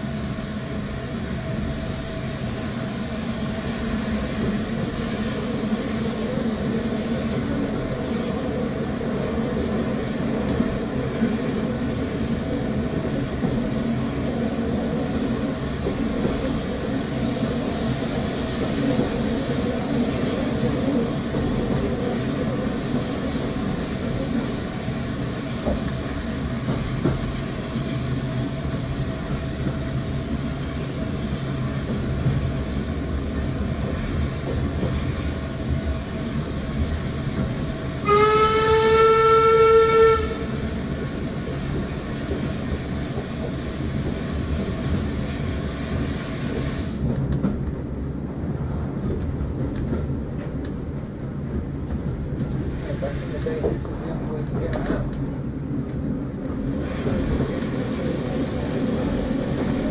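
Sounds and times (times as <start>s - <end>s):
train wheels rumbling on rails: 0.0s - 59.9s
train whistle blast: 38.0s - 40.6s.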